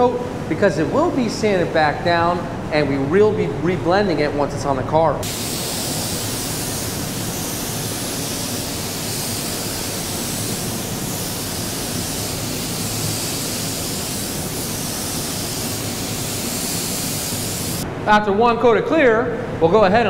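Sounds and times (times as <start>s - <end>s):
paint spray gun hissing: 5.2s - 17.8s.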